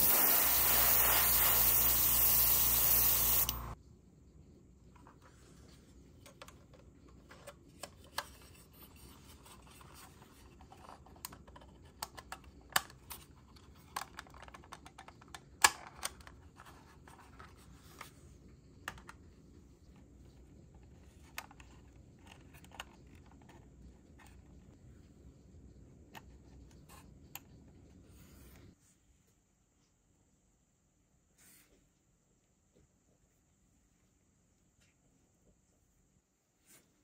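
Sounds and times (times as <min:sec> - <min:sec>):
plastic parts clicking: 0:10.6 - 0:16.8.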